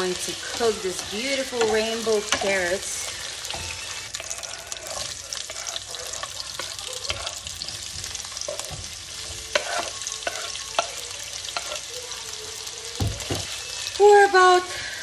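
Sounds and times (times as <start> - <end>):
utensil scraping pan: 0.0 - 11.9
carrots sizzling in frying pan: 0.0 - 15.0.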